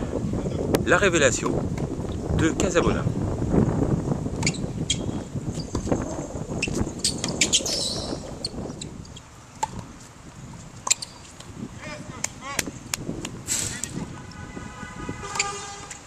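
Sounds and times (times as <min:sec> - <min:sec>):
wind rumble on microphone: 0:00.0 - 0:16.0
birds chirping: 0:04.4 - 0:09.3.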